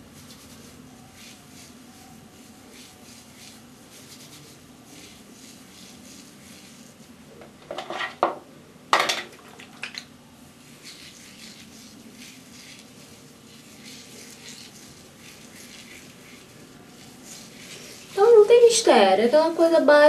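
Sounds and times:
hair rustling between fingers: 0.0s - 7.8s, 9.5s - 19.8s
clattering handling noises: 7.4s - 10.0s.

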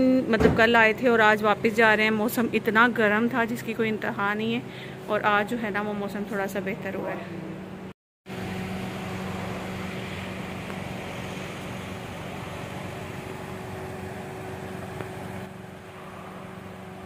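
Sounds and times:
low engine hum: 8.3s - 17.0s
road noise: 8.3s - 17.0s.

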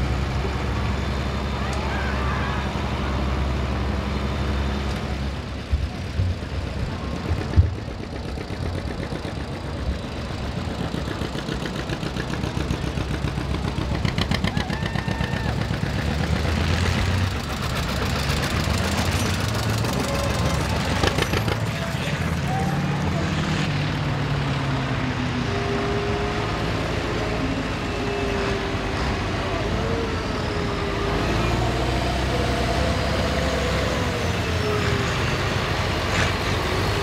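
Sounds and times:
tractor engines running: 0.0s - 37.0s
tractor engine slow even beat: 3.2s - 23.0s.

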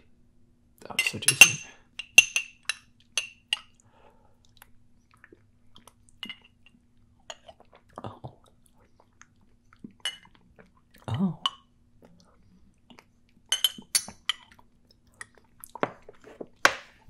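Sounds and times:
metal spoon clinking on glass jar: 1.0s - 3.6s.

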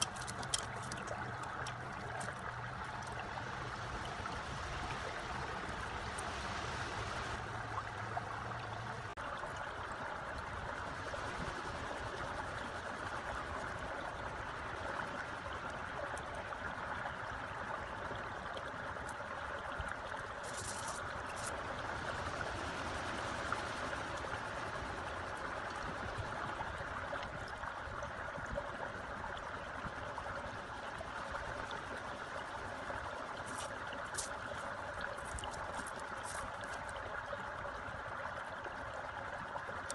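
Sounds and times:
steady rushing noise: 3.5s - 7.6s.

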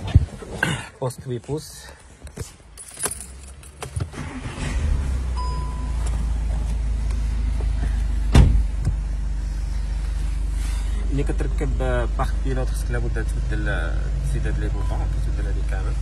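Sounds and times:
car engine starting and idling: 3.1s - 16.0s
short beep: 5.4s - 6.1s.

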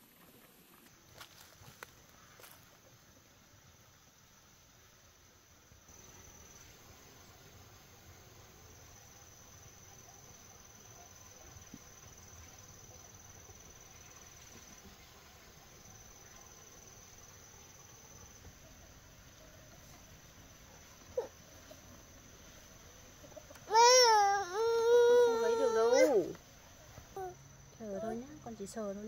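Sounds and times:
high-pitched insect trill: 5.9s - 29.0s.

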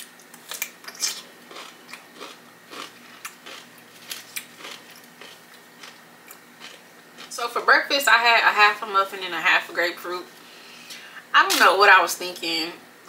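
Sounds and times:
crunchy chewing: 0.3s - 7.3s
crunchy bite into pickle: 0.5s - 7.3s.

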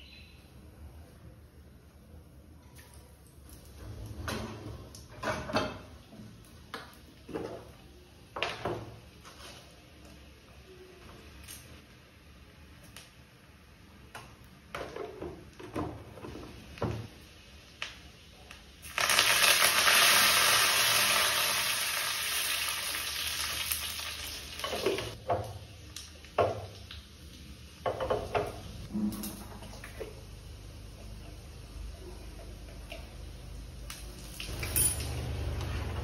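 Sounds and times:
spices sizzling in hot fat: 16.4s - 28.8s.

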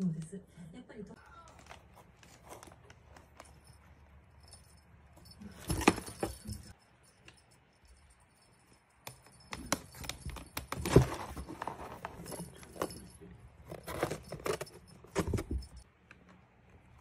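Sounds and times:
cardboard and paper rustling: 1.2s - 6.7s, 9.4s - 15.8s
small bell jingling: 2.4s - 15.8s.

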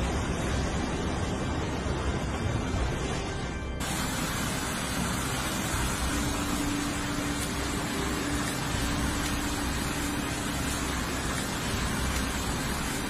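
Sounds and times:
floodwater rushing: 3.8s - 13.0s.

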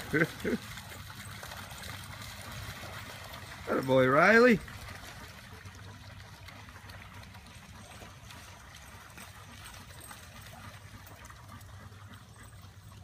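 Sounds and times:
dogs splashing through water: 0.0s - 13.0s.

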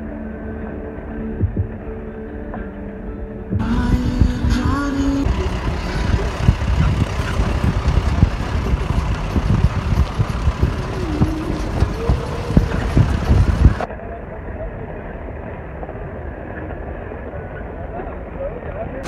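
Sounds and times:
vehicle rumbling on rough road: 3.5s - 19.0s
vehicle knocks and jolts: 5.3s - 13.9s.

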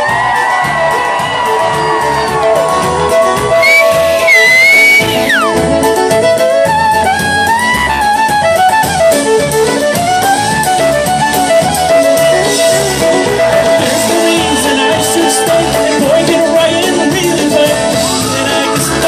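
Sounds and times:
fiddle melody: 0.0s - 19.0s
polka band playing: 0.0s - 19.0s.

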